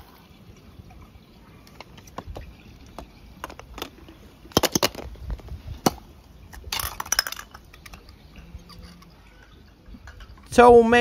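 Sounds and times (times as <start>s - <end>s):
toy cars knocking and clattering: 1.7s - 9.1s.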